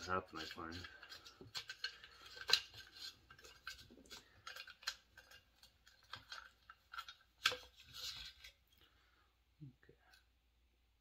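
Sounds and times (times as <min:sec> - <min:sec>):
small metallic clicks and scrapes: 0:00.0 - 0:08.8.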